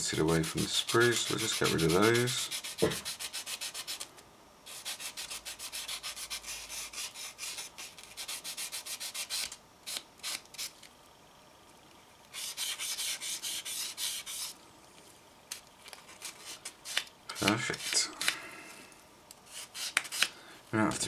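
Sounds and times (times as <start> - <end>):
sanding stick rubbing plastic: 0.3 - 4.0, 4.7 - 10.4, 12.4 - 14.5.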